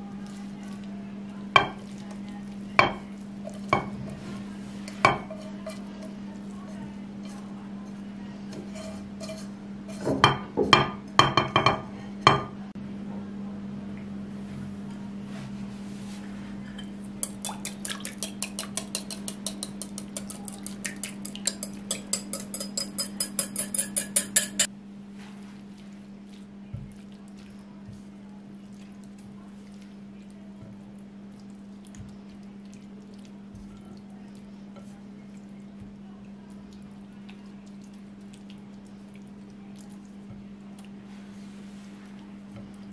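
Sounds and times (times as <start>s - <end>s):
spatula knocking against pan: 10.0s - 12.5s, 17.2s - 24.7s
utensil rattling against glass bowl: 17.2s - 24.7s.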